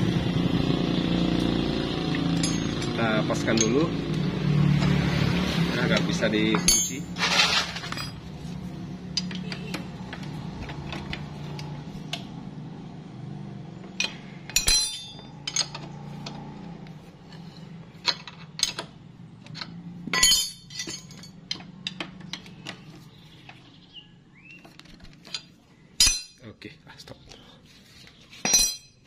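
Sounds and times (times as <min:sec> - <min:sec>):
spanner and bolts clinking on metal: 0:02.2 - 0:04.9, 0:05.8 - 0:08.4, 0:09.1 - 0:12.2, 0:13.8 - 0:16.6, 0:17.2 - 0:23.6, 0:24.8 - 0:26.5, 0:28.4 - 0:29.0.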